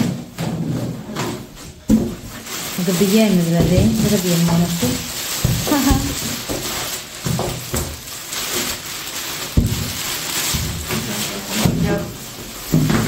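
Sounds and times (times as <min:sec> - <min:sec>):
plastic packaging crinkling: 0:01.6 - 0:13.0.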